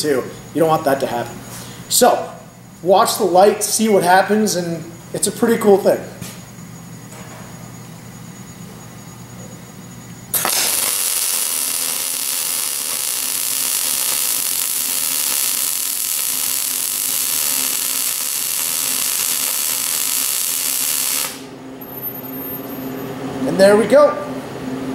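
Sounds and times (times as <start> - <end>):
welding arc crackling hiss: 10.3 - 21.6.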